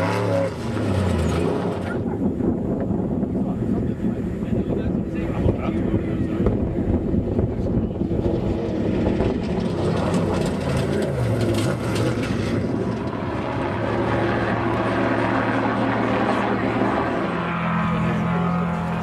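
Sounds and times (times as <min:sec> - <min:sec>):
race buggy engine revving high: 0:00.0 - 0:02.3, 0:07.2 - 0:19.0
helicopter: 0:00.0 - 0:19.0
steady engine drone: 0:00.0 - 0:19.0.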